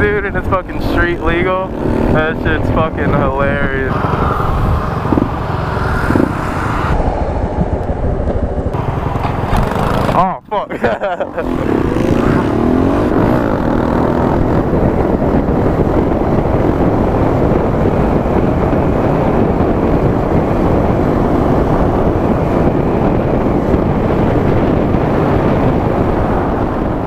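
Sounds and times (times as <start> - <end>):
motorcycle engine running: 0.0 - 10.4, 11.0 - 27.0
wind rushing over microphone: 0.0 - 27.0.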